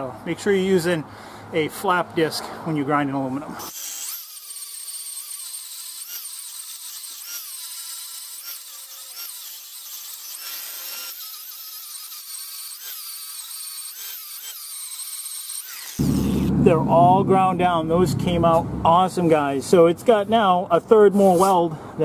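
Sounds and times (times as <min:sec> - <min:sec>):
angle grinder grinding metal: 0:03.6 - 0:16.6.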